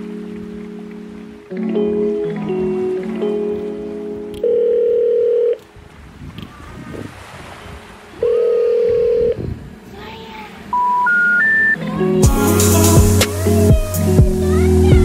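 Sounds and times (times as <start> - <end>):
telephone buzzing tone: 4.4 - 5.6, 8.2 - 9.5, 10.7 - 11.8
rising three-tone beeps: 10.7 - 11.8.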